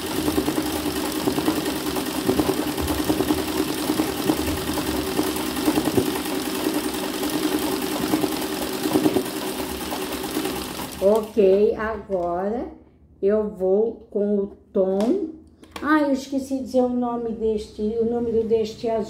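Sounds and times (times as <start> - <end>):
sewing machine running: 0.0 - 11.5.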